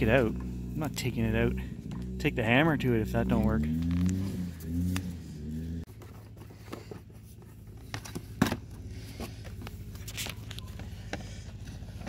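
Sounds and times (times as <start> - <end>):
low hum: 0.0 - 6.0.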